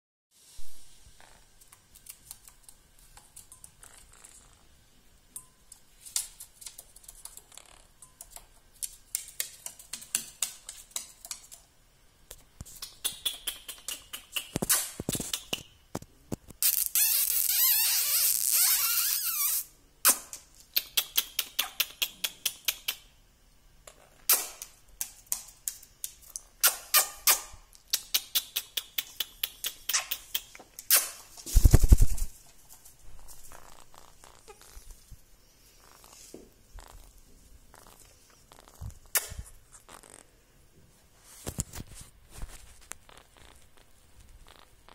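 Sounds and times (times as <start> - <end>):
parakeets clicking and tapping: 5.6 - 11.7.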